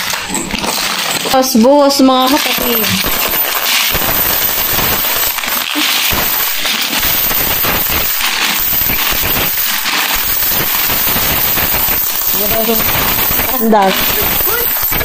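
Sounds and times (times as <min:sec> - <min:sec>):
coins clinking onto cardboard: 0:00.0 - 0:15.0.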